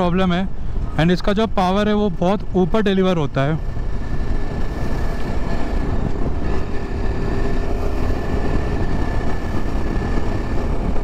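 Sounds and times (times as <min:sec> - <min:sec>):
motorcycle engine running: 0:03.4 - 0:11.0
wind rumble on microphone: 0:03.6 - 0:11.0.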